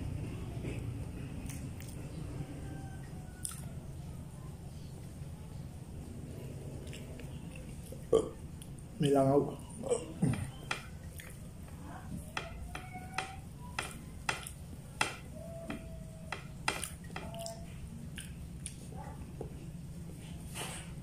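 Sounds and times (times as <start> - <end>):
low background hum: 0.0 - 21.0
lip smacks: 3.4 - 3.7, 16.8 - 18.9
wet chewing: 3.4 - 3.7, 6.8 - 8.9, 9.9 - 11.7, 16.3 - 19.2
small mouth clicks: 16.8 - 18.8.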